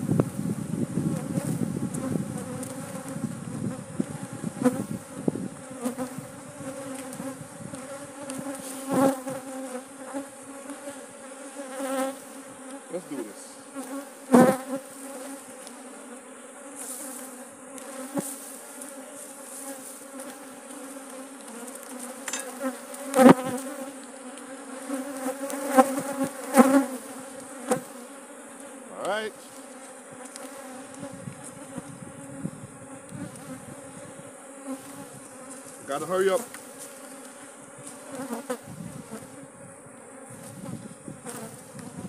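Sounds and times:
bees buzzing: 0.0s - 42.0s
knocks of hive frames: 1.2s - 10.9s, 19.7s - 29.2s.

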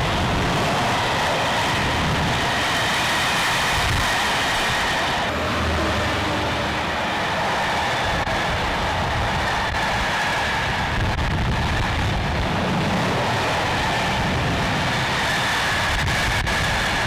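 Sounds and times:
freight train wheels rumbling: 0.0s - 17.0s.

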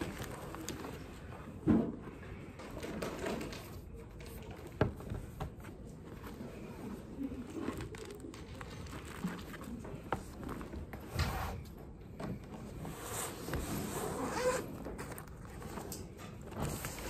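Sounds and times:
bag zip: 13.8s - 14.7s.

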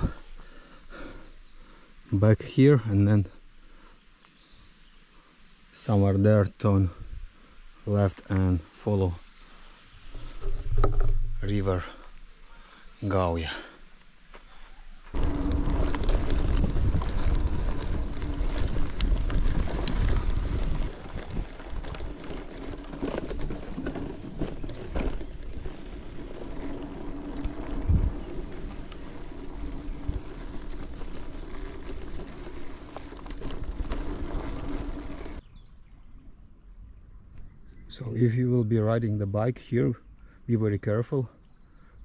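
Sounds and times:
bike tyres rumbling on trail: 14.4s - 35.5s
faint hum: 14.7s - 35.4s
bike rattling over bumps: 15.1s - 35.4s
wind noise: 15.1s - 35.6s.

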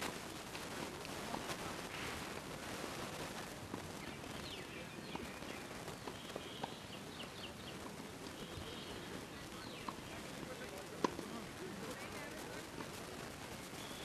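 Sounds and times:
outdoor hiss: 0.0s - 14.0s
tennis balls struck by racquets: 9.0s - 11.4s.

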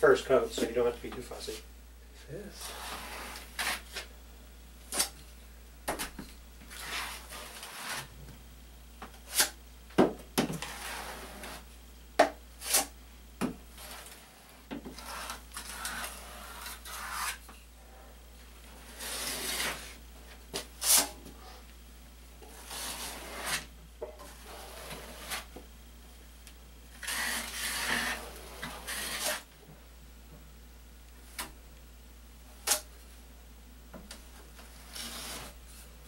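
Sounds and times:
drywall knife scraping compound: 2.5s - 4.1s, 6.7s - 8.1s, 9.2s - 9.6s, 10.5s - 11.7s, 12.6s - 12.9s, 13.7s - 17.6s, 18.7s - 21.2s, 22.4s - 25.6s, 27.0s - 29.5s, 34.7s - 35.6s.

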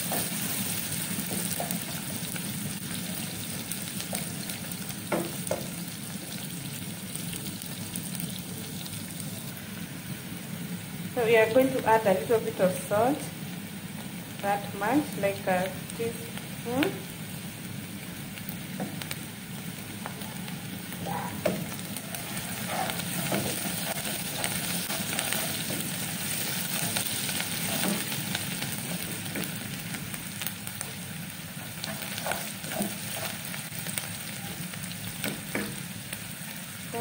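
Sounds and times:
onions sizzling in oil: 0.0s - 37.0s
wooden spatula scraping a pot: 22.1s - 26.0s, 31.6s - 33.6s.

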